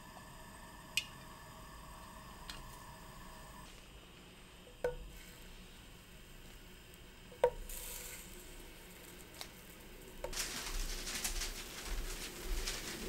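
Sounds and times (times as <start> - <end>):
oil sizzling and crackling: 4.8 - 13.0
tap on frying pan: 7.4 - 7.7.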